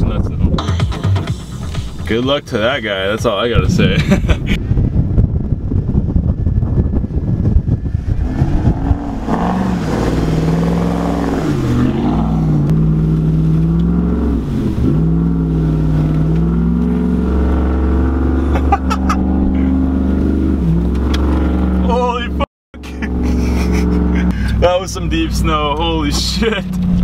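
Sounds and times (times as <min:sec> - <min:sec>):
wind buffeting microphone: 0:02.7 - 0:18.5
truck engine pulling through snow: 0:22.8 - 0:27.0.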